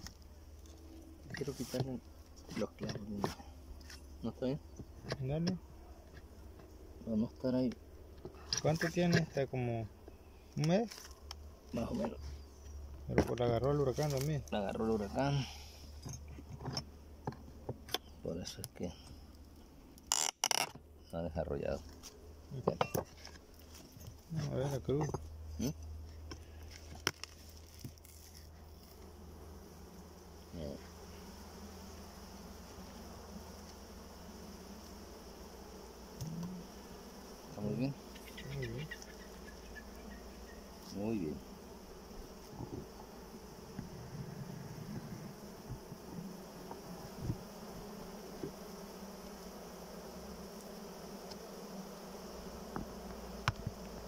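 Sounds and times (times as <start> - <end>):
honeybees buzzing: 0.0 - 54.0
light knocks on wooden hive: 44.8 - 48.6, 52.6 - 54.0
knocks on wooden hive box: 52.7 - 53.8.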